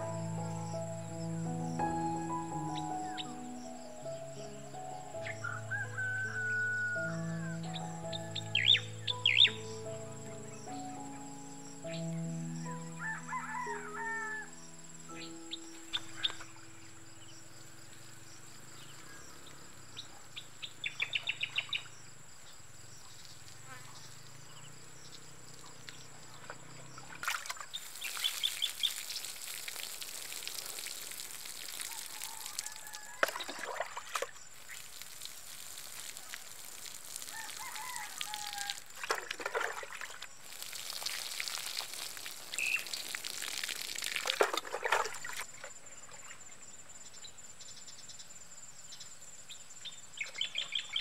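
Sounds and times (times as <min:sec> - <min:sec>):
birds chirping: 0:00.0 - 0:13.2
soft background music: 0:00.0 - 0:17.7
water poured onto soil: 0:26.6 - 0:46.4.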